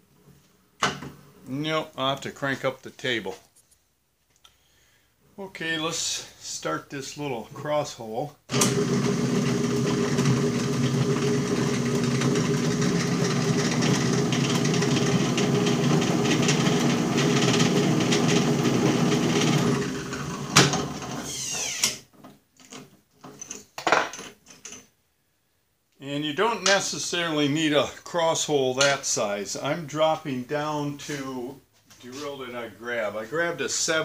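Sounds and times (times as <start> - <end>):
drill press running: 8.5 - 22.0.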